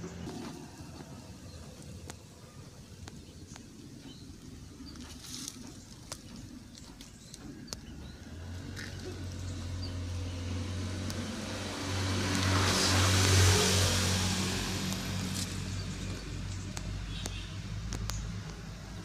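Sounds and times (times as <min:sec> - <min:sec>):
engine running steadily: 0:00.0 - 0:19.0
light clicks: 0:16.0 - 0:18.7.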